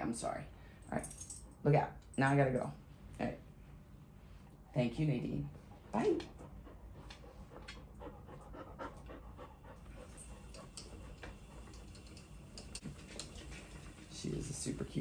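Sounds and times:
dog panting: 0:05.8 - 0:12.3.

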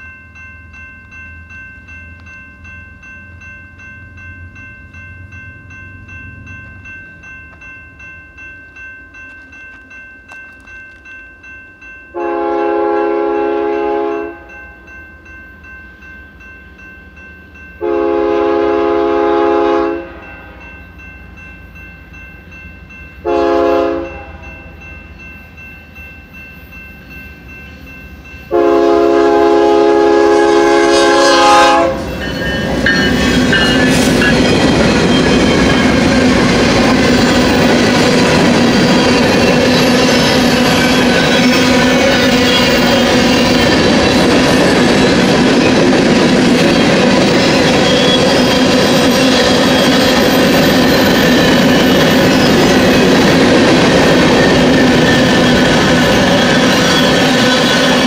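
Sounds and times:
crossing bell ringing: 0:00.0 - 0:58.0
train horn blasts: 0:12.2 - 0:14.5, 0:17.8 - 0:20.6, 0:23.2 - 0:24.7, 0:28.5 - 0:32.1
locomotives passing: 0:31.6 - 0:58.0.

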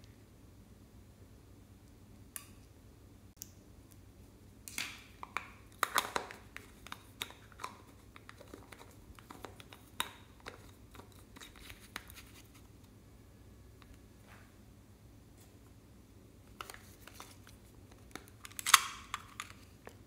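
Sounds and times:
plastic container clicks and crackles: 0:04.7 - 0:12.2.

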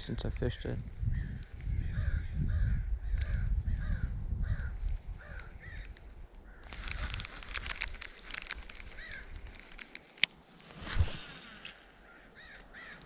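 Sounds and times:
bird calling: 0:01.2 - 0:09.9, 0:11.1 - 0:13.0
crackling noise: 0:04.8 - 0:13.0.

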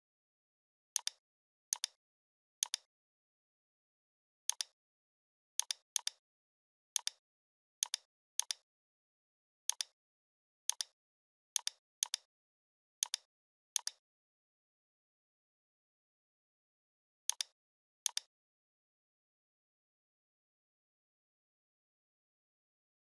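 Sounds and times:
computer mouse clicking: 0:01.0 - 0:02.0, 0:02.6 - 0:02.9, 0:04.5 - 0:04.8, 0:05.6 - 0:06.2, 0:07.0 - 0:07.2, 0:07.8 - 0:08.6, 0:09.7 - 0:10.0, 0:10.7 - 0:11.0, 0:11.6 - 0:12.3, 0:13.0 - 0:14.0, 0:17.3 - 0:18.3.

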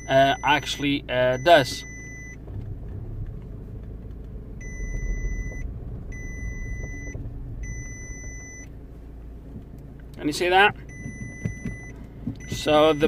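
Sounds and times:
car engine rumbling: 0:00.0 - 0:13.0
electronic beeps: 0:04.6 - 0:08.7, 0:10.9 - 0:13.0.

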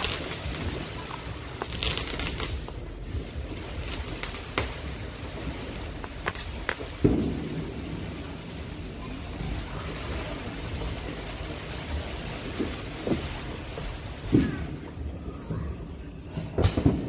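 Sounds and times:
fireworks popping and cracking: 0:00.0 - 0:17.0
low rumble: 0:00.0 - 0:17.0
loud firework thump: 0:06.2 - 0:07.8, 0:16.4 - 0:17.0.

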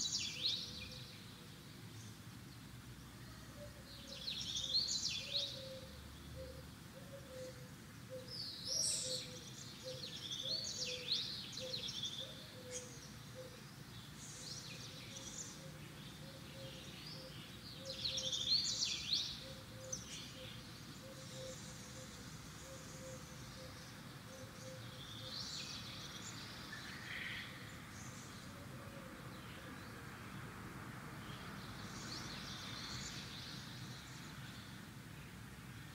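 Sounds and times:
small birds chirping: 0:04.0 - 0:28.5.

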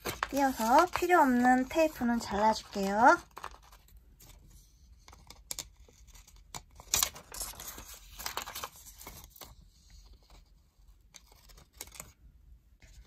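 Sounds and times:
tape and paper crinkling: 0:00.0 - 0:04.4, 0:05.1 - 0:09.5.

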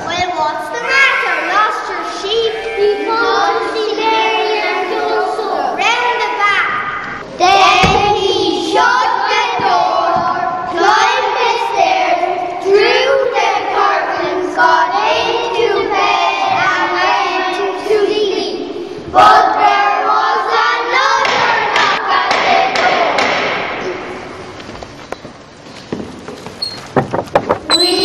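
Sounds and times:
children singing together: 0:00.7 - 0:24.3.

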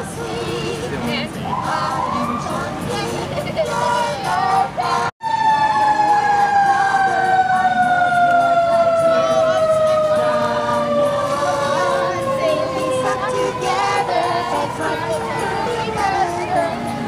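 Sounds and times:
mechanical siren winding down: 0:05.2 - 0:16.3.

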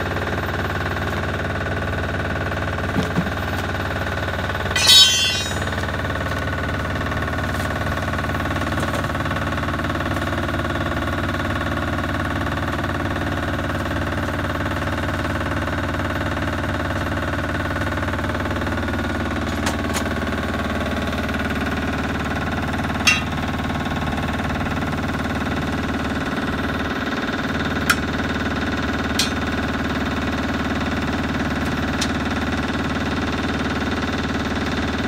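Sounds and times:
engine running steadily: 0:05.6 - 0:35.0.

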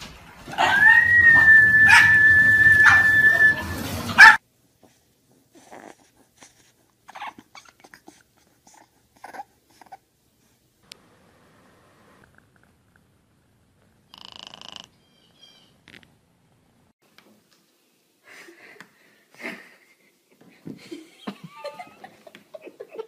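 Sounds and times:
dog noises: 0:00.5 - 0:04.4, 0:05.5 - 0:10.1
puppy whimpers: 0:07.1 - 0:10.0.

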